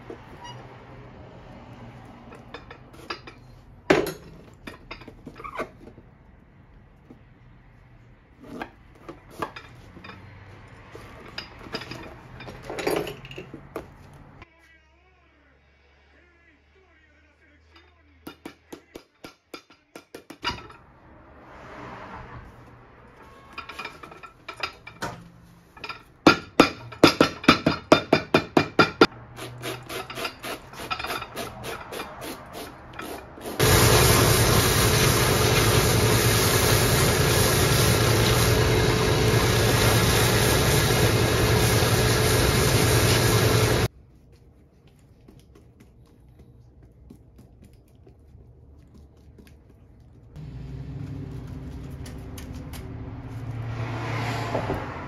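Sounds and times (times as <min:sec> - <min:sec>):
sharp hand tool strokes: 0:29.0 - 0:43.9
sanding wheel humming: 0:33.5 - 0:43.9.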